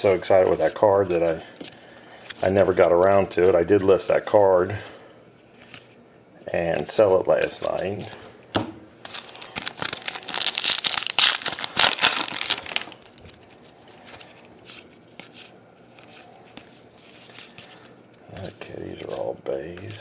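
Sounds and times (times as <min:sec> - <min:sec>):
cards being handled: 0:06.7 - 0:08.2, 0:09.0 - 0:20.0
foil wrapper crinkling and tearing: 0:09.1 - 0:13.3.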